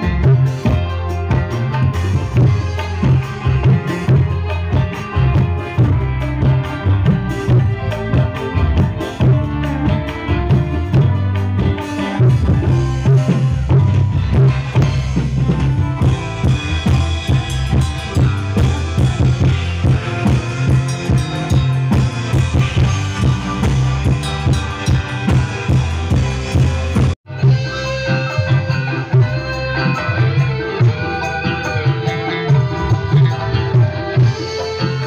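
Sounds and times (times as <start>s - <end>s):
drum kit beating: 0.0s - 35.0s
live band through speakers: 0.0s - 35.0s
low bass line: 0.0s - 35.0s.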